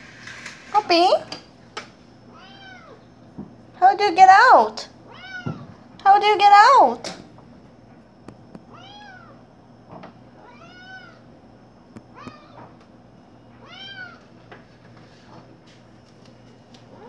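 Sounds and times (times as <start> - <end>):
cat meowing: 2.3 - 3.0, 5.1 - 5.7, 8.7 - 9.4, 10.4 - 11.2, 12.2 - 12.7, 13.6 - 14.2.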